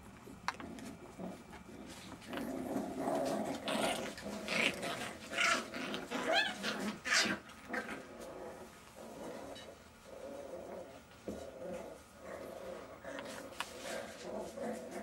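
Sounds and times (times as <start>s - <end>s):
puppies growling and yelping: 0.2s - 15.0s.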